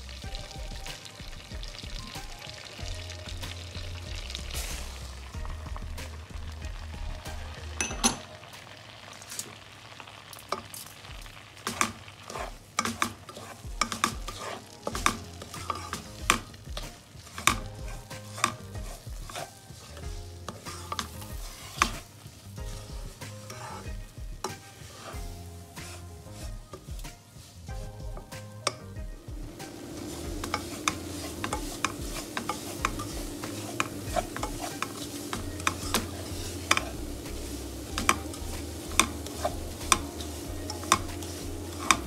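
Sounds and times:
soft sizzle: 0:00.0 - 0:42.0
spatula scraping a pan: 0:11.6 - 0:28.8, 0:29.4 - 0:42.0.

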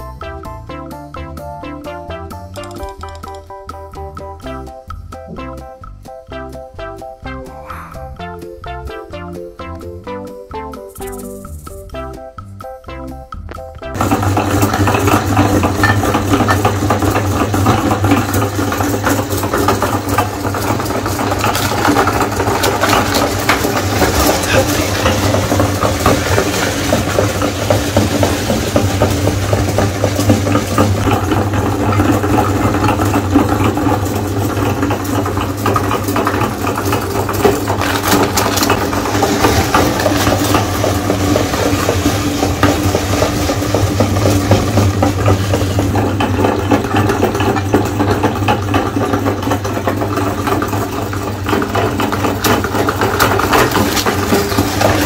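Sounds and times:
cookies crunching in grinder: 0:13.9 - 0:55.0
meat grinder motor hum: 0:14.0 - 0:55.0.

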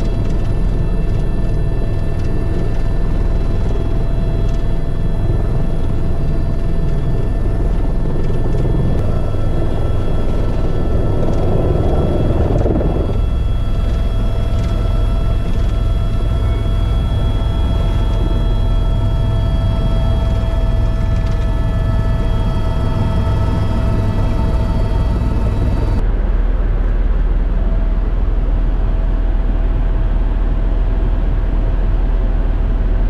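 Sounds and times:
helicopter rotor rumble: 0:00.0 - 0:33.0
turbine whine: 0:00.0 - 0:33.0.

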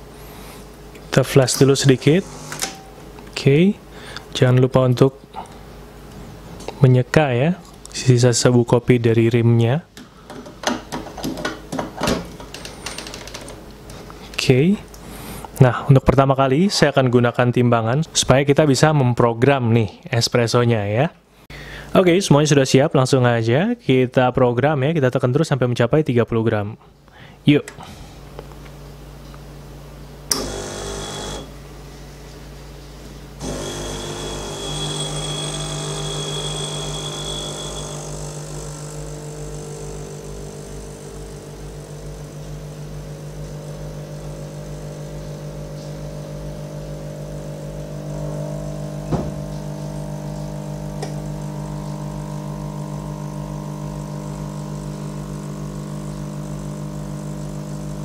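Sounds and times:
espresso machine pump humming: 0:01.7 - 0:03.0, 0:30.3 - 0:31.6, 0:33.4 - 0:58.0.

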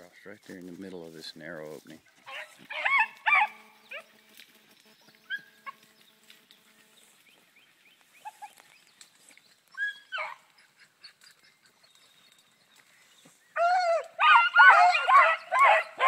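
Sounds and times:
hunting dogs baying: 0:02.2 - 0:04.2, 0:09.6 - 0:16.0.

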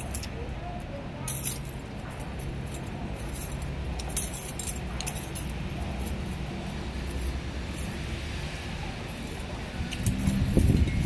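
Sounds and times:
metallic jingling and clinking: 0:00.0 - 0:11.0.

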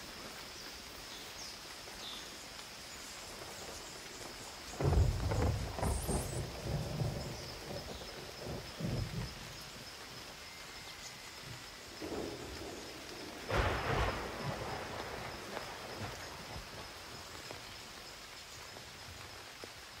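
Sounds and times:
thunder rumbling: 0:04.7 - 0:17.3.

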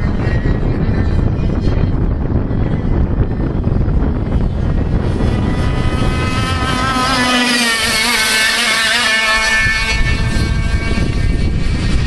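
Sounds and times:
wind on microphone: 0:00.0 - 0:12.0
kart engine passing: 0:03.5 - 0:12.0.

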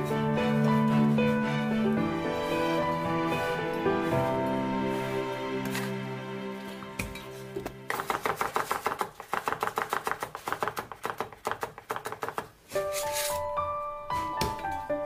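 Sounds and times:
soft background music: 0:00.0 - 0:08.2, 0:12.7 - 0:15.0
cleaver chopping on wooden board: 0:07.9 - 0:12.4.

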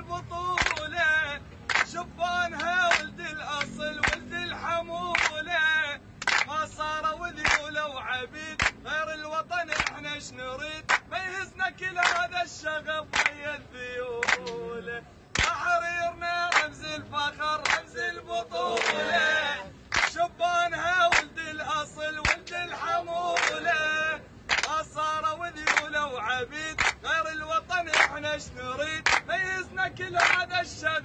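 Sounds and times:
men singing a chant: 0:00.0 - 0:31.0
hand claps: 0:00.6 - 0:01.0, 0:01.7 - 0:04.3, 0:05.1 - 0:05.5, 0:06.2 - 0:06.6, 0:07.4 - 0:07.8, 0:08.6 - 0:08.8, 0:09.6 - 0:10.0, 0:10.8 - 0:11.1, 0:12.0 - 0:12.4, 0:13.1 - 0:13.4, 0:14.2 - 0:14.6, 0:15.3 - 0:15.6, 0:16.5 - 0:16.8, 0:17.6 - 0:17.9, 0:18.8 - 0:19.1, 0:19.9 - 0:20.2, 0:21.1 - 0:21.4, 0:22.2 - 0:22.5, 0:23.4 - 0:23.6, 0:24.5 - 0:24.9, 0:25.6 - 0:26.0, 0:26.7 - 0:27.0, 0:27.9 - 0:28.2, 0:29.0 - 0:29.3, 0:30.1 - 0:30.6.

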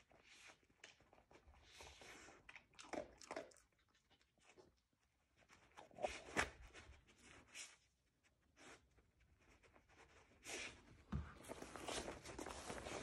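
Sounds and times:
dog crunching kibble: 0:02.5 - 0:04.2.

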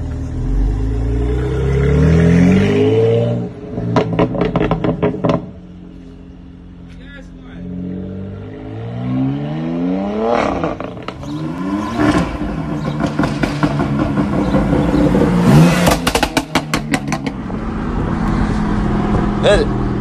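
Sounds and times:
car engine at full throttle: 0:00.0 - 0:20.0
exhaust pops and crackles: 0:04.0 - 0:05.6, 0:15.7 - 0:17.6.

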